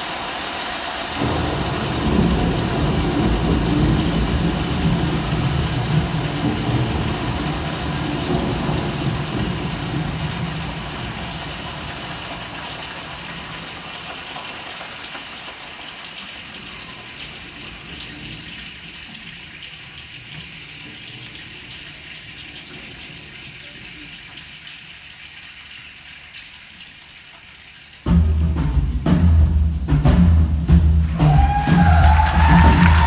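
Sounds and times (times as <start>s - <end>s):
choir imitating rain hiss: 0.0s - 18.3s, 30.9s - 33.0s.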